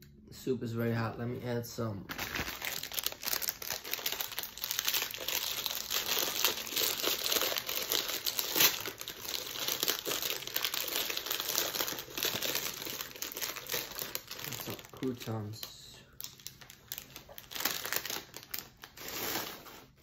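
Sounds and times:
plastic packet crinkling: 0:02.1 - 0:20.0.

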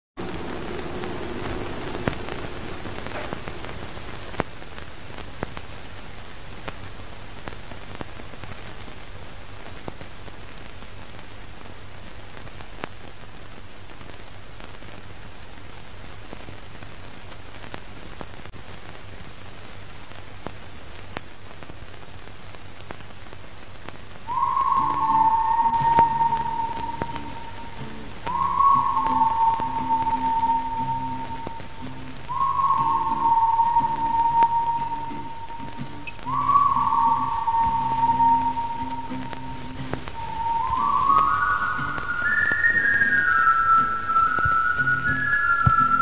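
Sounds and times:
record crackle hiss and pops: 0:00.2 - 0:46.0
whistle-like tone: 0:24.3 - 0:46.0.

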